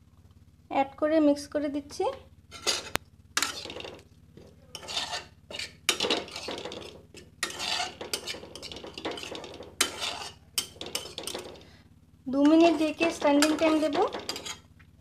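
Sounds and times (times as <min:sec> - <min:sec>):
spatula scraping a pan: 0:02.5 - 0:11.8, 0:12.4 - 0:14.7.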